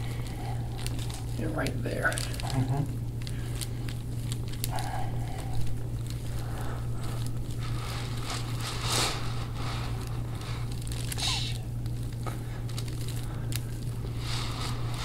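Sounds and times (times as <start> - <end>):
low steady hum: 0.0 - 15.0
hands rubbing skin and clothing: 6.2 - 11.8.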